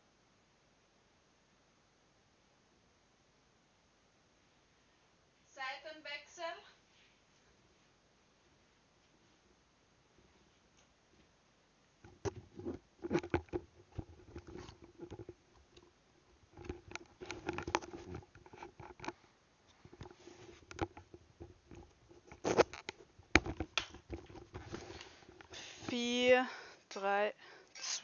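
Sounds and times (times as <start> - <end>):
headphones handled knocks and rustling: 12.0 - 15.8, 16.5 - 25.6.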